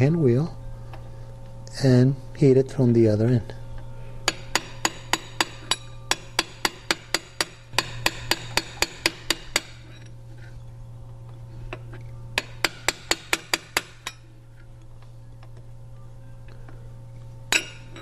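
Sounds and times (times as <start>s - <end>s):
steady low hum: 0.0s - 18.0s
hammer tapping metal: 4.2s - 10.1s, 12.4s - 14.2s, 17.5s - 18.0s.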